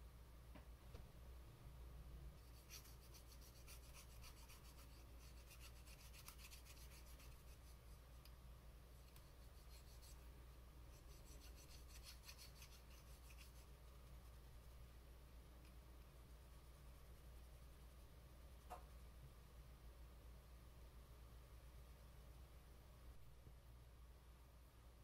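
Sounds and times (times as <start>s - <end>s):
cotton swab scratchy rubbing: 2.4s - 8.3s, 9.0s - 10.3s, 10.9s - 14.8s.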